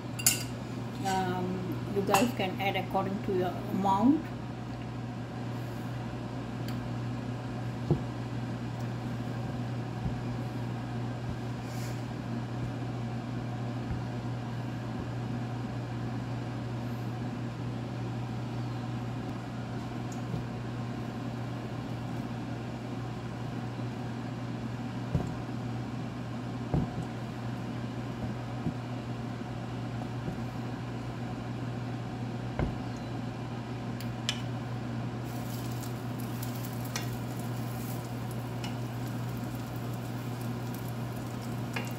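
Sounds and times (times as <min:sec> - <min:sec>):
low mechanical hum: 0:00.0 - 0:41.9.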